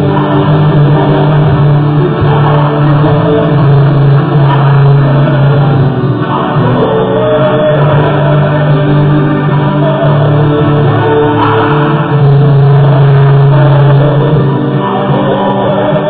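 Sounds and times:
loud guitar music: 0:00.0 - 0:16.0.

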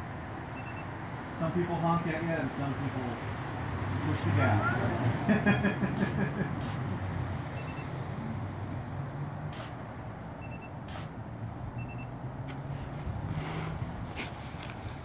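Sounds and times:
street traffic rumble: 0:00.0 - 0:15.0
camera focus beeps: 0:00.6 - 0:00.9, 0:07.6 - 0:08.0, 0:09.5 - 0:09.8, 0:10.4 - 0:11.1, 0:11.8 - 0:12.2
camera shutter clicks: 0:09.5 - 0:09.8, 0:10.8 - 0:11.2.

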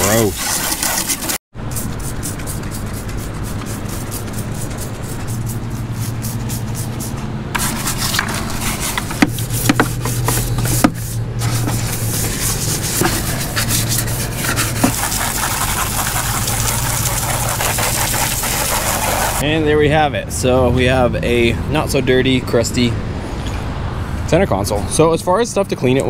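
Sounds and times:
brush scrubbing wet plastic: 0:00.0 - 0:19.4
sharp knocks and clicks: 0:08.9 - 0:11.0
garden hose spraying water: 0:14.7 - 0:19.4.

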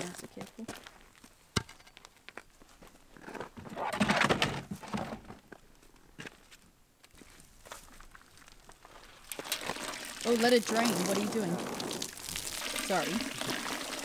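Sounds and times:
footsteps on gravel: 0:00.0 - 0:01.4, 0:05.5 - 0:09.2.

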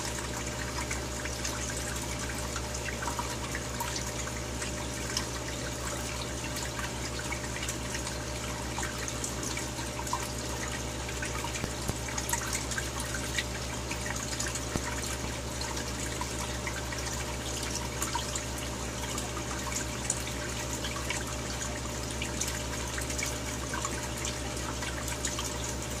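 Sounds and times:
aquarium water bubbling: 0:00.0 - 0:26.0
water drips and pops: 0:00.1 - 0:18.6.

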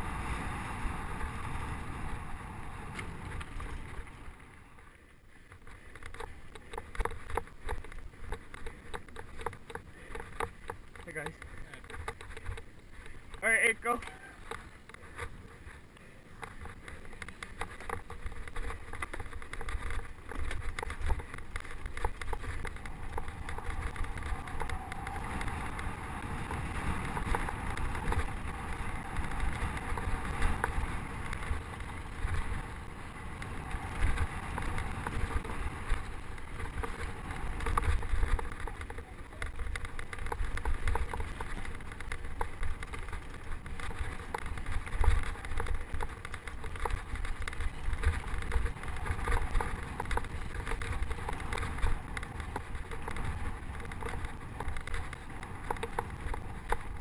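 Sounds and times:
tyre noise on dirt: 0:00.0 - 0:57.0
bike rattles and knocks: 0:02.9 - 0:57.0
wind buffeting microphone: 0:15.1 - 0:57.0.

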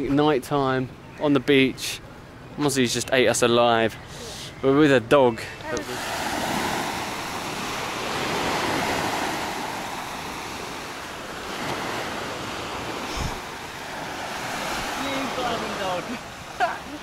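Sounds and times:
waves washing onto beach: 0:05.6 - 0:17.0.

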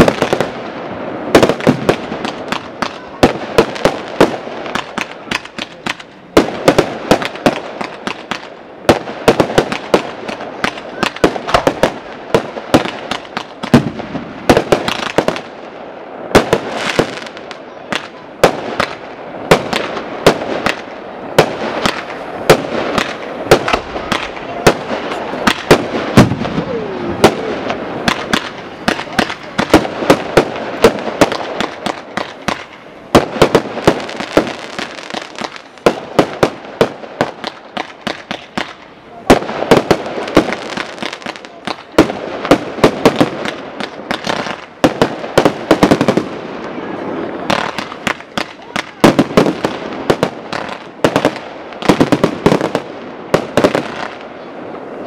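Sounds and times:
firework shells bursting: 0:16.4 - 0:46.3.

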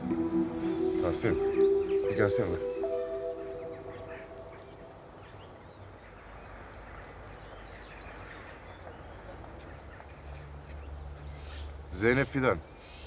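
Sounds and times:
faint bird chirps: 0:00.0 - 0:05.6
low background hiss: 0:00.0 - 0:06.6.

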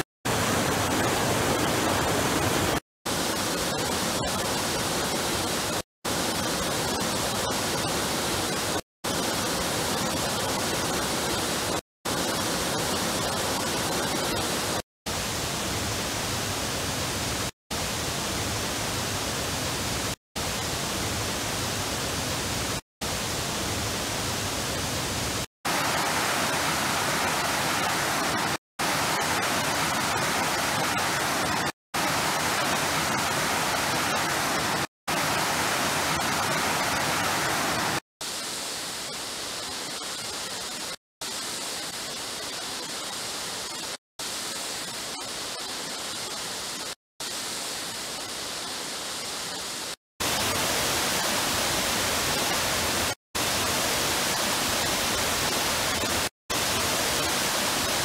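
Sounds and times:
waterfall rushing: 0:25.7 - 0:38.0.

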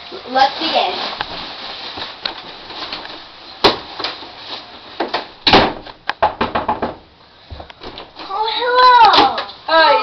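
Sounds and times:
knocking on door: 0:06.2 - 0:07.0.

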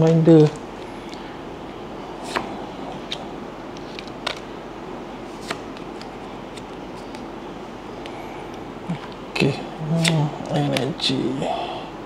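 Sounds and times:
steady background hiss: 0:00.0 - 0:12.0
cards clicking and sliding: 0:02.2 - 0:04.5, 0:05.3 - 0:07.3, 0:10.0 - 0:10.9.

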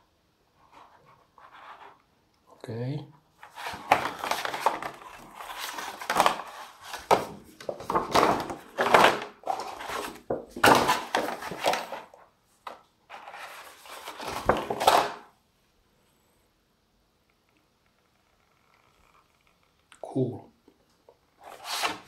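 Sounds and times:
paperboard rustling and flapping: 0:03.4 - 0:15.2, 0:21.4 - 0:22.0.

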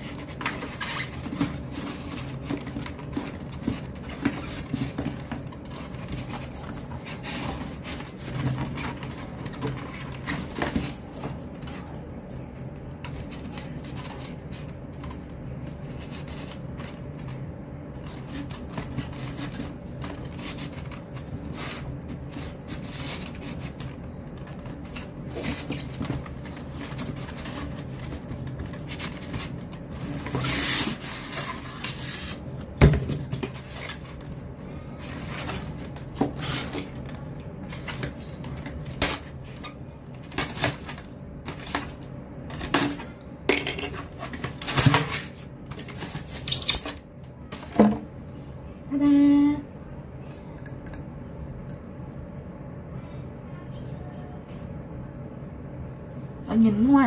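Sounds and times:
cardboard rubbing and scraping: 0:00.0 - 0:39.7.

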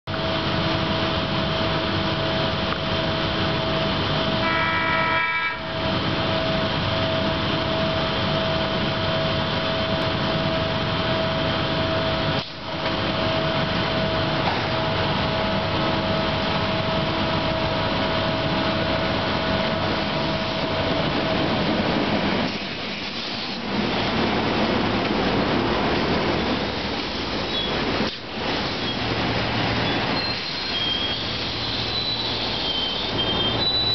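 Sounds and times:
electric train humming and whining: 0:00.1 - 0:33.9
train rumbling as it pulls in: 0:00.1 - 0:33.9
train horn blast: 0:04.4 - 0:05.8.

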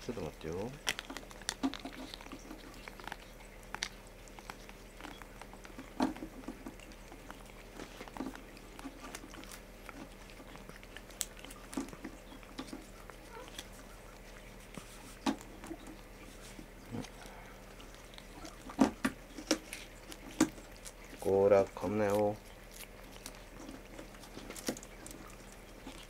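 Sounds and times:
tongue and teeth clicks: 0:00.8 - 0:21.3, 0:21.9 - 0:26.0.

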